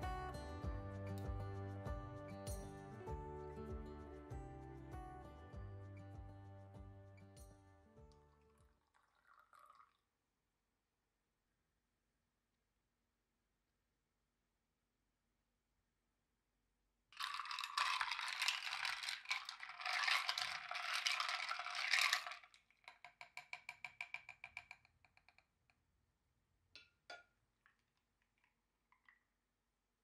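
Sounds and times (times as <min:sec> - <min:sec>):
ice cubes clinking in glass: 0:17.2 - 0:23.6.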